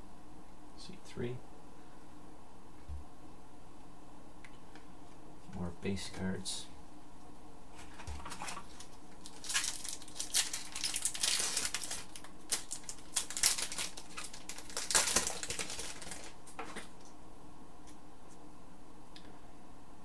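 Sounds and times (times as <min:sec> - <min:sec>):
foil wrapper crinkling and tearing: 0:07.8 - 0:16.9.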